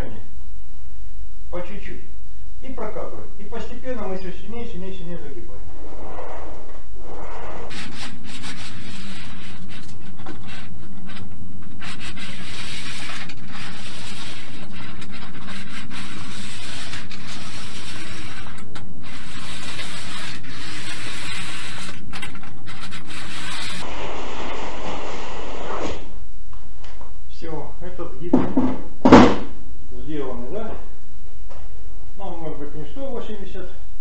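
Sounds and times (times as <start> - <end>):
rollers scraping sheet metal: 5.8 - 24.7.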